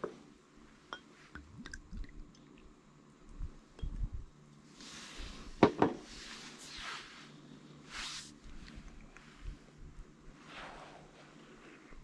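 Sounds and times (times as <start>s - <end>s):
liquid pouring into cup: 1.4s - 2.7s
soft knocks of bottle and cup: 5.6s - 6.0s.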